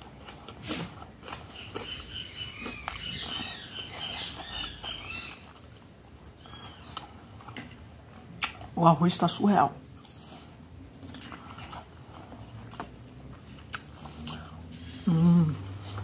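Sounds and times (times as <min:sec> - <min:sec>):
small bird chirping: 0:01.5 - 0:05.5, 0:06.4 - 0:07.1.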